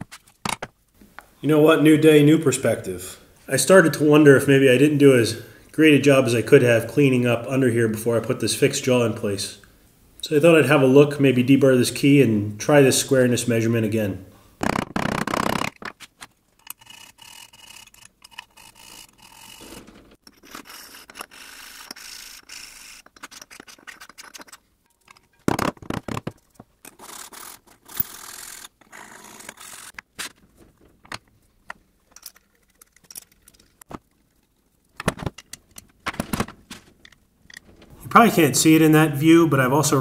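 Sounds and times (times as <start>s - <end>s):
metal scraping and rubbing: 16.6s - 25.4s
metal parts clicking and knocking: 16.6s - 30.0s, 30.7s - 33.9s, 34.9s - 37.9s.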